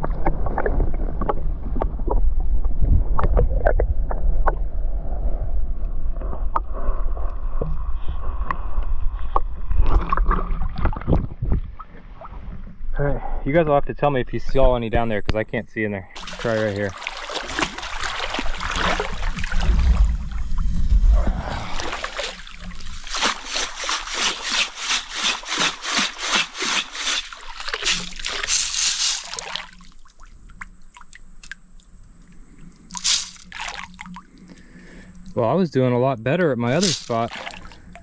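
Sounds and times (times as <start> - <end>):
gravel sloshing in water: 16.2 - 30.3, 32.9 - 35.0, 36.6 - 38.0
gravel clattering onto screen: 36.7 - 37.8.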